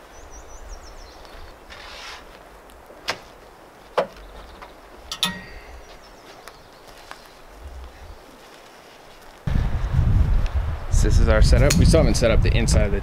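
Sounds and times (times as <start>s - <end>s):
bird chirping: 0.0s - 1.6s, 4.1s - 8.5s
gear rustling: 1.2s - 9.5s
metallic clank: 5.1s - 5.7s.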